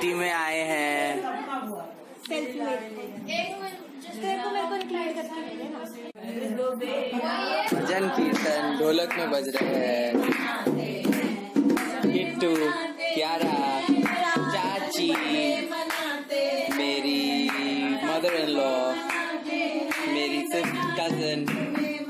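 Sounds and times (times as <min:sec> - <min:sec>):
women singing together: 0:03.8 - 0:22.0
hand-clapping: 0:07.7 - 0:12.8, 0:13.4 - 0:22.0.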